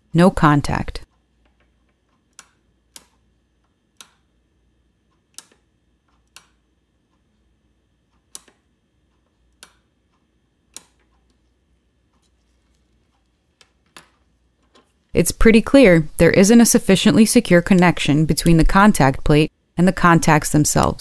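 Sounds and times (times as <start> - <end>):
limit switch clicking: 4.0 - 4.3.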